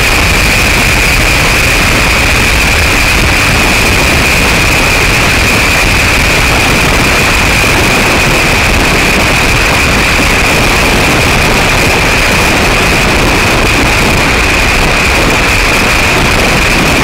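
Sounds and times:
constant high whine: 0.0 - 17.0
vehicle wind and road noise: 0.0 - 17.0.

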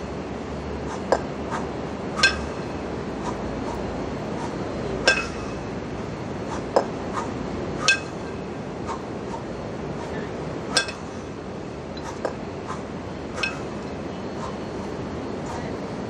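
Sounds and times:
steady background hum: 0.0 - 16.0
kettlebells clinking and ringing: 2.2 - 2.8, 5.0 - 5.7, 7.8 - 8.4, 10.7 - 11.3, 13.3 - 13.9.

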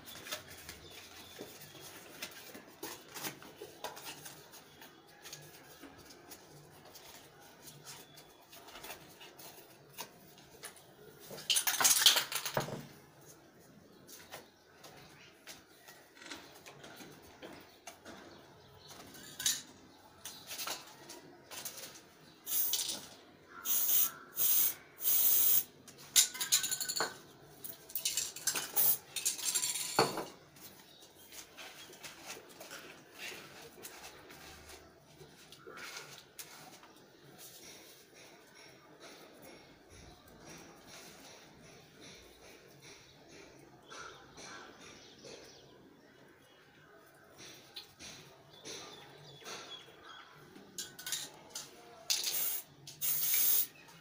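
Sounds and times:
aerosol spray can hissing: 22.5 - 22.9, 23.6 - 25.7, 52.3 - 53.7.

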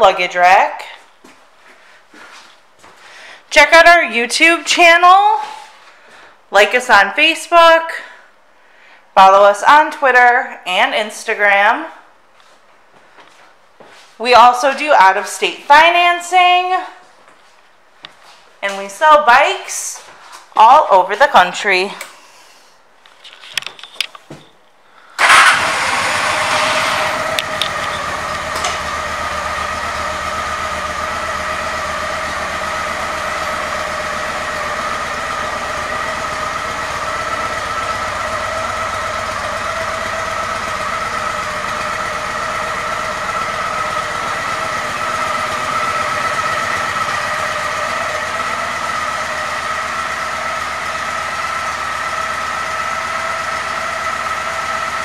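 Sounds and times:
motorcycle engine starting and idling: 25.2 - 55.0.

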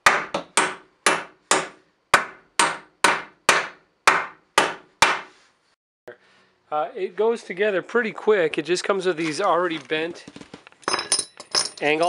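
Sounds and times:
hammer striking wooden stud: 0.0 - 5.3.

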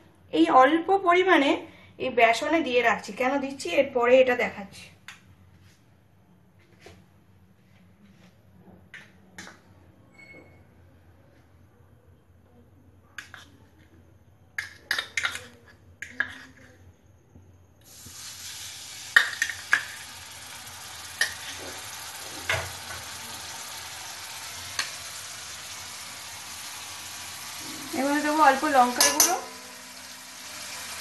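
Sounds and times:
paste sizzling in hot oil: 17.8 - 31.0.

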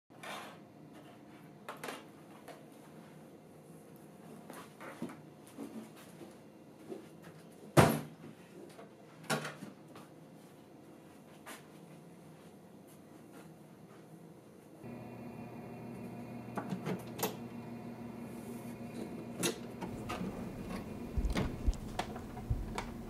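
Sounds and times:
knocks and handling noises: 19.4 - 23.0.

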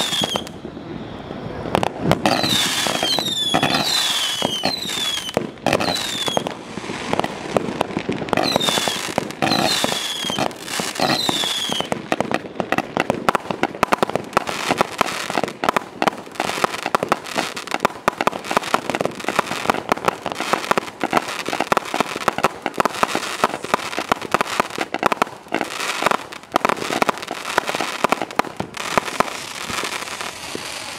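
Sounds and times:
firework crackling pops and bangs: 0.0 - 0.7, 1.5 - 30.9
firework whistles: 0.0 - 7.4, 8.3 - 12.8, 25.6 - 30.9.

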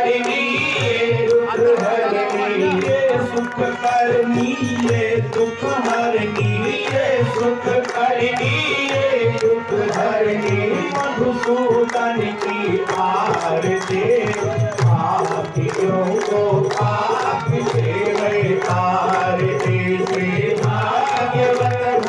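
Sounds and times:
sung devotional melody: 0.0 - 22.0.

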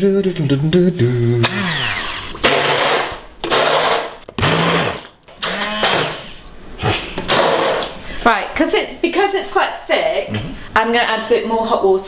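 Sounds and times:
stick blender motor: 1.4 - 6.4.

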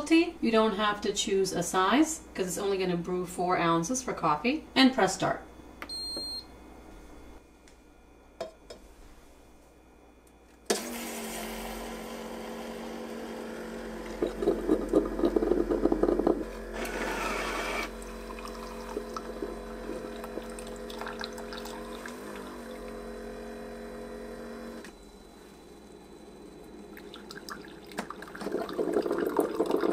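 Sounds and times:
coffee maker humming: 10.7 - 29.9
milk frother whirring: 10.7 - 29.9
coffee maker spluttering: 13.2 - 23.4, 26.9 - 29.9.

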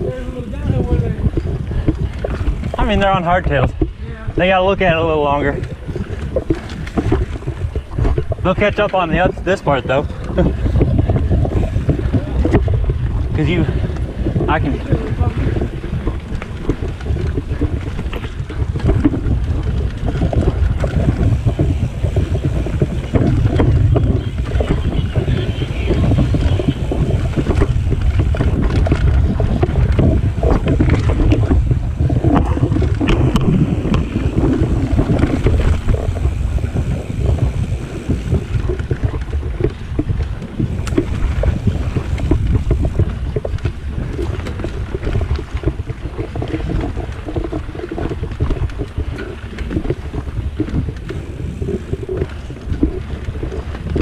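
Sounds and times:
bike rattling over rough trail: 0.0 - 54.0
wind rumble on microphone: 0.0 - 54.0.

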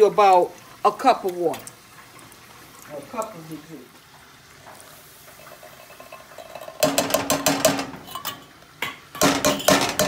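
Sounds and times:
can clattering against metal pot: 5.3 - 10.0.

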